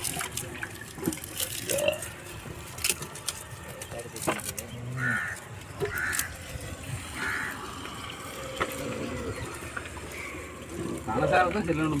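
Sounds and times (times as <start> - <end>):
water sloshing in a metal pot: 0.0 - 12.0.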